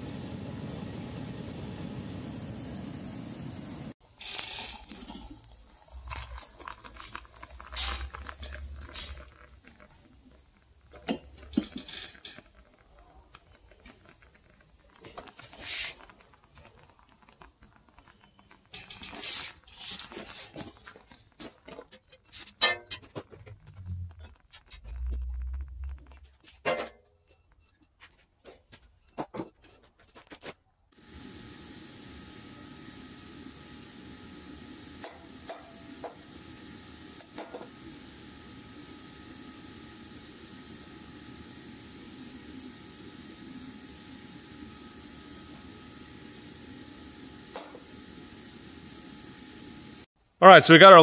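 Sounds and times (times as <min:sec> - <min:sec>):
cooling slag crackling and ticking: 0:04.0 - 0:22.5, 0:23.3 - 0:26.6
low rumble: 0:24.8 - 0:26.3.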